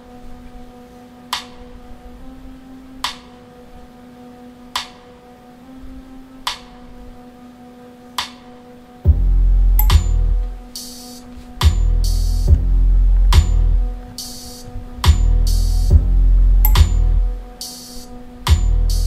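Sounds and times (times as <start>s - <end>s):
heavy bass music: 9.0s - 19.0s
low held tone: 9.1s - 10.8s, 11.6s - 17.5s.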